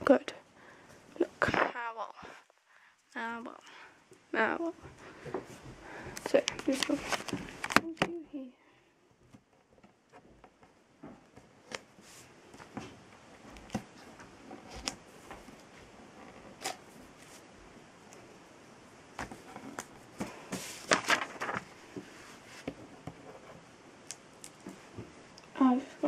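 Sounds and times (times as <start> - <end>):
paper rustling: 6.2 - 8.0, 19.2 - 23.6.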